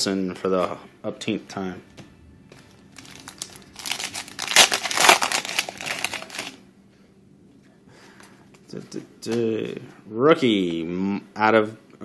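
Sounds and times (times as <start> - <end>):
foil wrapper crinkling and tearing: 3.0 - 6.6.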